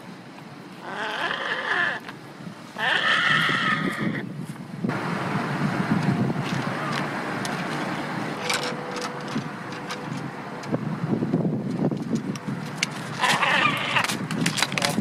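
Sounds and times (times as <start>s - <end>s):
gull call: 0.8s - 2.0s, 2.8s - 4.2s, 13.2s - 14.1s.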